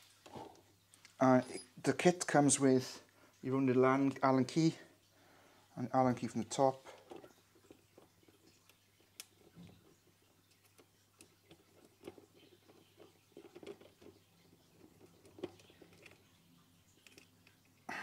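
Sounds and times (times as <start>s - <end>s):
allen key turning screw: 1.4s - 1.8s.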